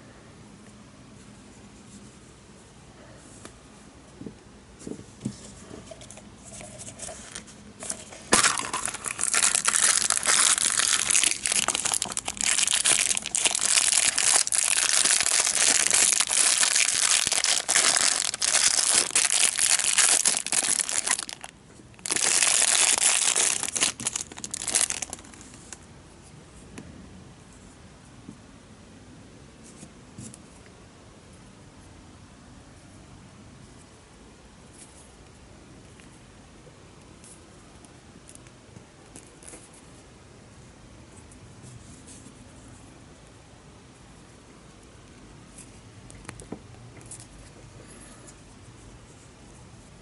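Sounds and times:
plastic bag crinkling: 6.5s - 25.8s.

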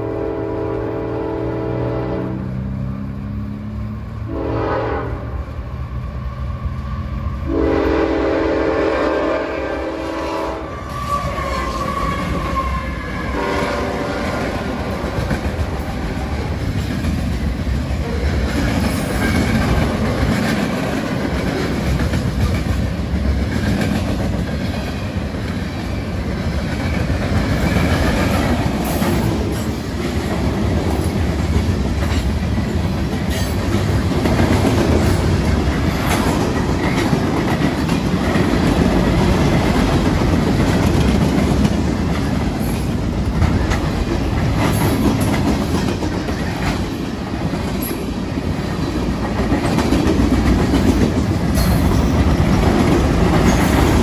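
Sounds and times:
train horn blasts: 0.0s - 2.7s, 4.2s - 5.5s, 7.4s - 14.6s
train wheels clacking on rails: 10.9s - 54.0s.

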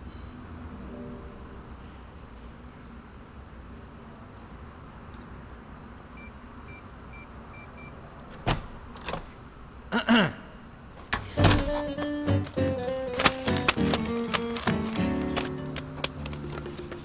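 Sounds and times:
music: 11.3s - 17.0s.

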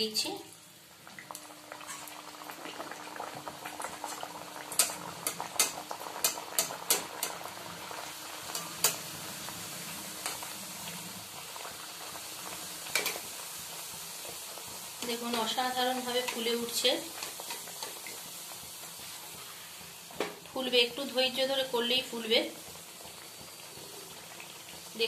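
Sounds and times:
food deep-frying in oil: 0.0s - 25.0s
metal spatula tapping pan: 4.8s - 7.4s.

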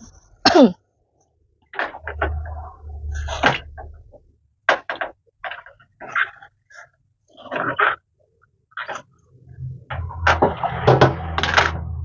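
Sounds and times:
low rumble: 9.5s - 12.0s
kitchen items knocking and scraping: 9.9s - 12.0s.

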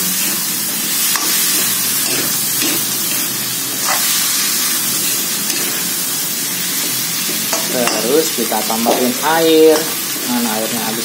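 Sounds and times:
food sizzling in a wok: 0.0s - 11.0s
metal spatula scraping: 0.2s - 4.6s, 5.4s - 6.0s.

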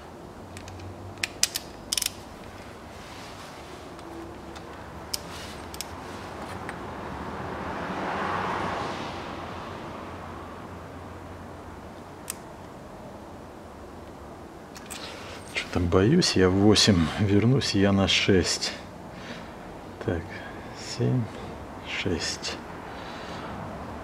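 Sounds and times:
ratchet wrench clicking: 0.6s - 2.2s.

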